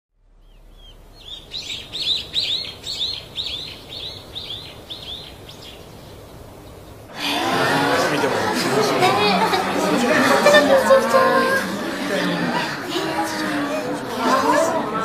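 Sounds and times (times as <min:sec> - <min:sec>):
small birds chirping: 0:00.3 - 0:07.2
faint background hush: 0:00.5 - 0:15.0.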